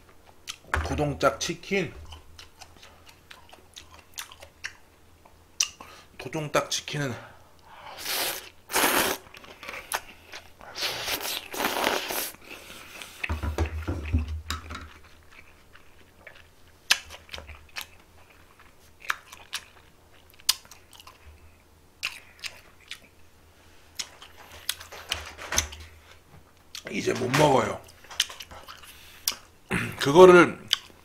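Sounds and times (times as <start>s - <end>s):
chewing: 0.3s - 0.7s, 2.0s - 5.9s, 14.5s - 23.3s, 23.9s - 26.9s, 27.8s - 29.5s, 30.7s - 31.0s
mouth clicks and smacks: 5.6s - 5.9s
man slurping noodles: 7.9s - 9.3s, 10.8s - 12.4s.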